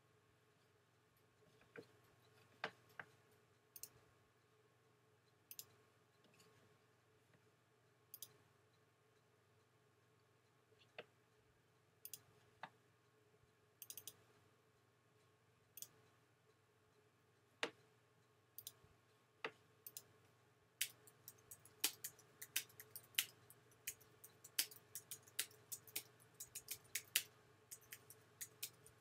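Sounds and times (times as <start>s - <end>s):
mouse clicks: 5.5s - 5.8s, 8.1s - 8.4s, 12.0s - 12.8s, 13.8s - 14.2s, 19.4s - 20.1s, 20.8s - 29.0s
keyboard typing: 20.8s - 29.0s.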